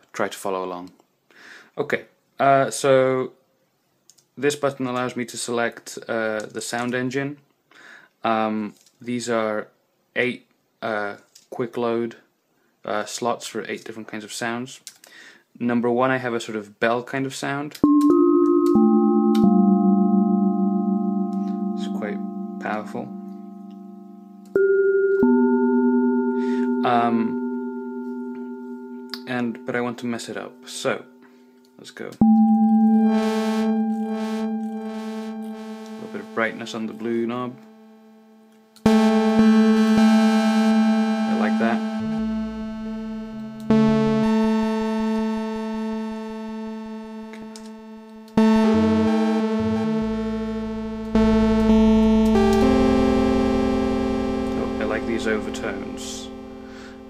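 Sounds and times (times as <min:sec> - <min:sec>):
bell-like synthesizer notes: 0:17.8 - 0:57.0.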